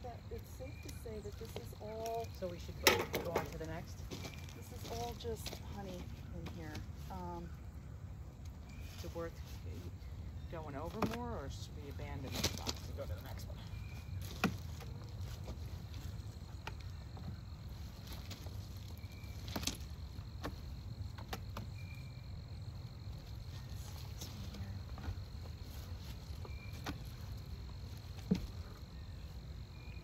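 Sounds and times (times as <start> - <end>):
beehive frames clicking and knocking: 0.8 - 4.4, 10.9 - 11.4, 19.4 - 21.9.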